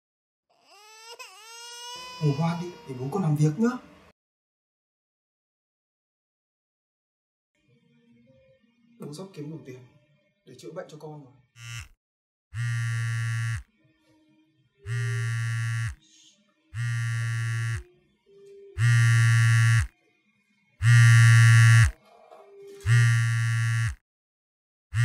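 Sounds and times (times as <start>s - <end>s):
phone buzzing: 11.6s - 11.9s, 12.6s - 13.6s, 14.9s - 16.0s, 16.8s - 17.8s, 18.8s - 19.9s, 20.8s - 22.0s, 22.8s - 24.0s.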